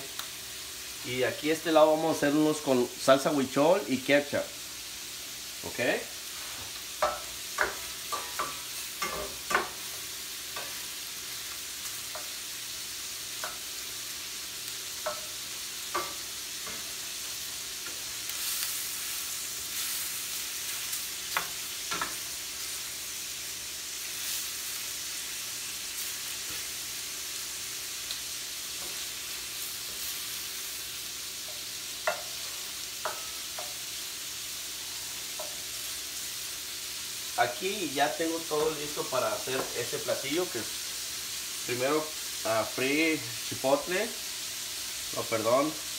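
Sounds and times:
shrimp sizzling in skillets: 0.0s - 45.9s.

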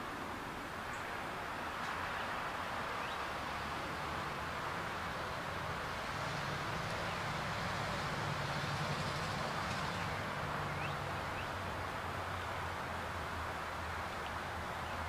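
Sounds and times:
faint rising bird chirps: 10.7s - 11.6s.

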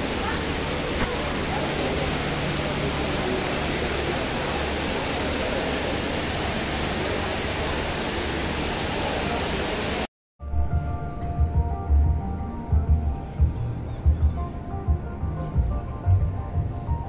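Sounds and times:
indoor waterfall rushing: 0.0s - 10.1s.

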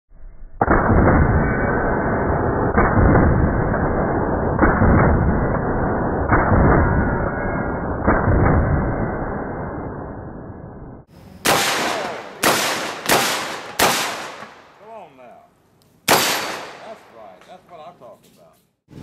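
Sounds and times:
shotgun firing: 0.6s - 9.0s, 11.4s - 14.8s, 16.1s - 17.4s.

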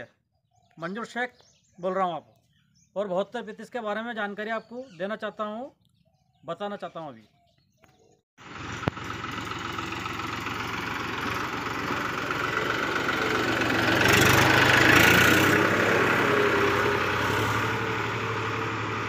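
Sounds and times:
tractor diesel engine running: 8.4s - 19.0s.

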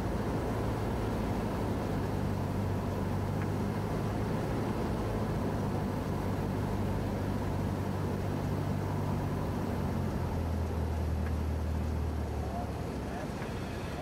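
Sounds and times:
aircraft engine and propeller: 0.0s - 14.0s.

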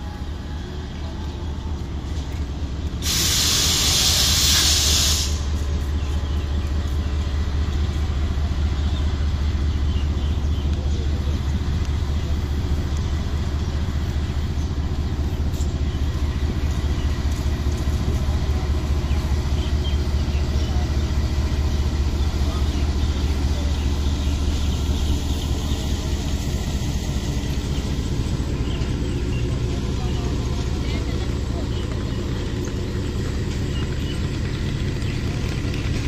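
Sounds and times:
diesel locomotive engine droning: 0.0s - 36.0s
air release hiss: 3.0s - 5.5s.

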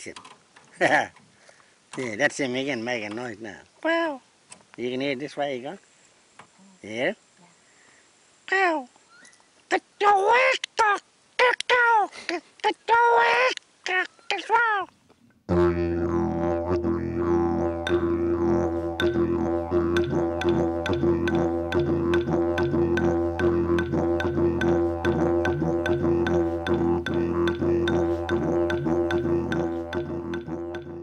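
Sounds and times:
didgeridoo drone: 15.5s - 31.0s
sharp rhythmic taps: 17.9s - 18.1s, 18.9s - 31.0s.

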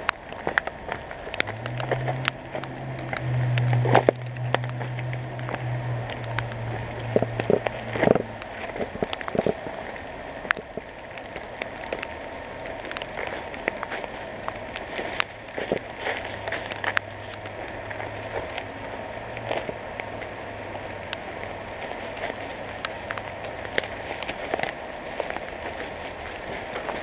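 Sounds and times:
footsteps crunching through leaves: 0.0s - 10.1s, 12.7s - 27.0s
twigs snapping: 0.0s - 20.3s, 21.0s - 27.0s
low steady hum: 0.0s - 27.0s.

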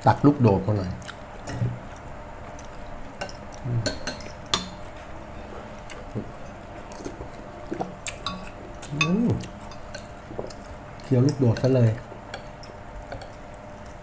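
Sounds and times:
metal spoons clinking on bowls: 3.2s - 4.8s, 8.2s - 10.1s.

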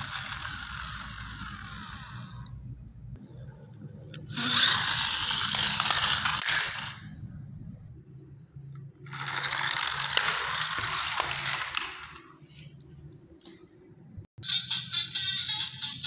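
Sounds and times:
toy vehicle gears rattling and whirring: 0.0s - 2.6s, 4.2s - 7.1s, 9.0s - 12.4s, 14.4s - 16.0s.

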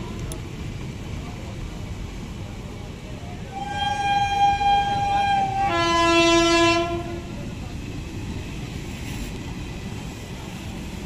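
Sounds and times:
train coaches rumbling on rails: 0.0s - 11.0s
train horn: 3.5s - 7.3s.

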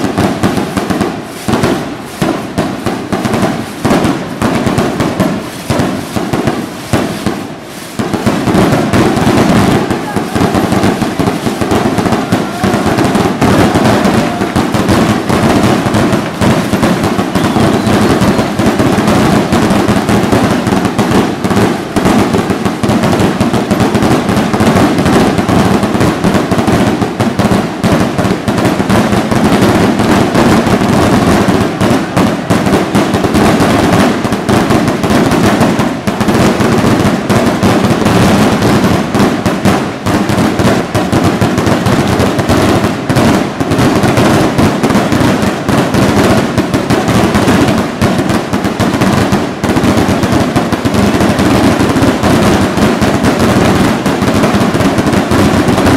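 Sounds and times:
fireworks bangs and crackles: 0.0s - 55.9s.

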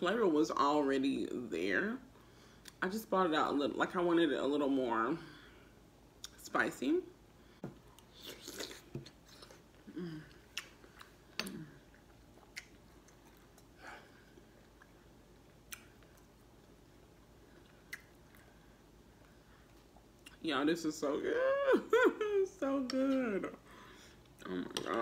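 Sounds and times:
person chewing and swallowing: 7.7s - 20.4s.

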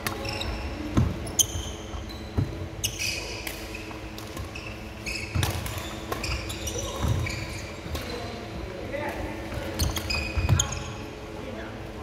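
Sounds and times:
sneakers squeaking on wooden floor: 0.0s - 8.5s, 9.5s - 11.1s
rackets hitting shuttlecock: 5.3s - 7.2s.

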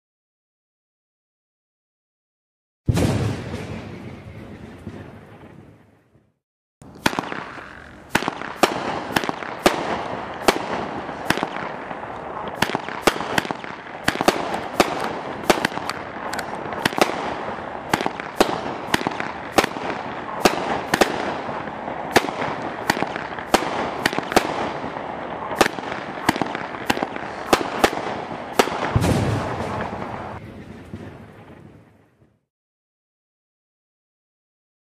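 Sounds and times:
deep firework thump: 2.9s - 4.1s, 28.9s - 30.1s
firework sharp cracks: 2.9s - 5.0s, 6.8s - 31.1s.

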